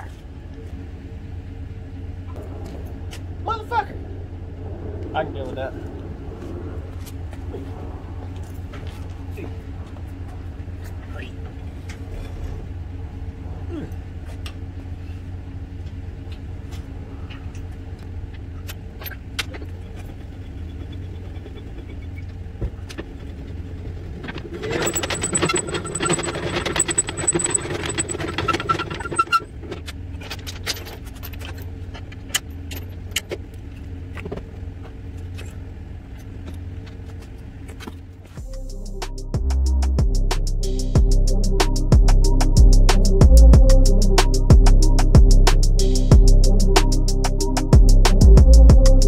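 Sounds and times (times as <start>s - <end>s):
truck engine idling: 0.0s - 49.0s
jack gears grinding whir: 17.5s - 34.6s
metallic clinks of chains: 24.6s - 29.2s.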